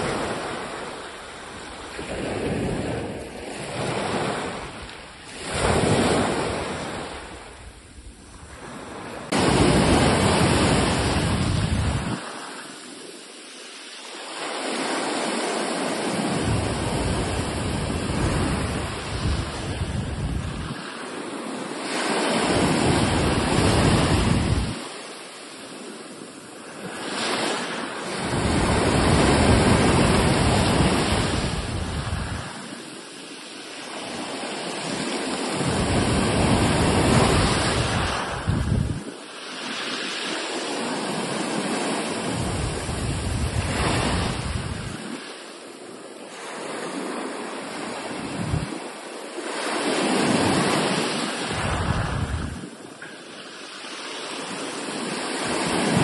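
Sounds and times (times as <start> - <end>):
wind rumbling on microphone: 0.0 - 13.0, 14.0 - 25.2, 25.8 - 33.1, 33.7 - 56.0
waves breaking on shore: 0.0 - 56.0.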